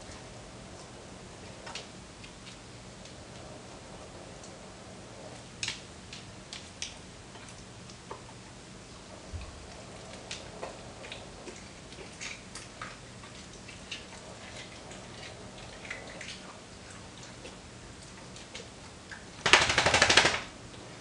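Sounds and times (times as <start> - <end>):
faint low hum: 0.0 - 21.0
dog chewing raw meat: 6.1 - 19.3.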